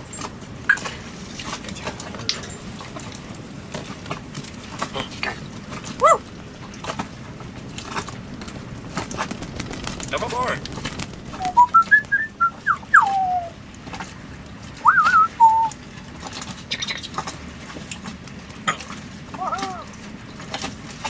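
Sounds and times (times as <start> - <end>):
parrot call: 11.4 - 13.6, 19.4 - 19.9.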